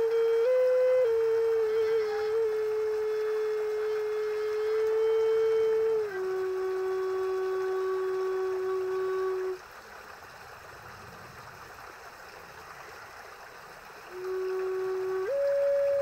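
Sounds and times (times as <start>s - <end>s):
wooden flute long low note: 0.0s - 9.6s, 14.1s - 16.0s
steady background hiss: 0.0s - 16.0s.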